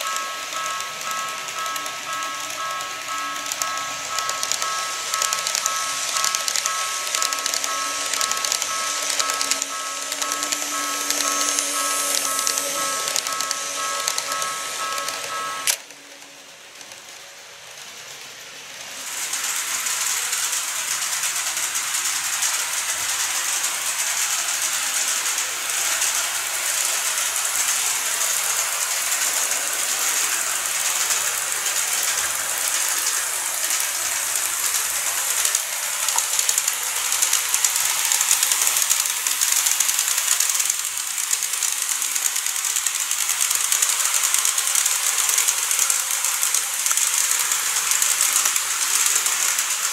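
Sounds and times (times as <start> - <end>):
steady tone: 0.0 - 15.9
model train motor whir: 0.0 - 49.9.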